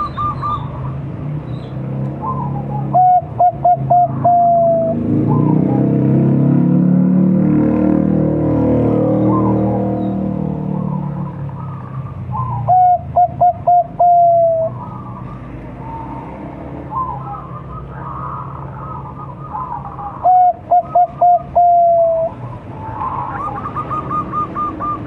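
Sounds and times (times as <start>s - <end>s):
dove cooing: 0.0s - 1.0s, 2.2s - 5.8s, 9.2s - 16.1s, 16.9s - 25.0s.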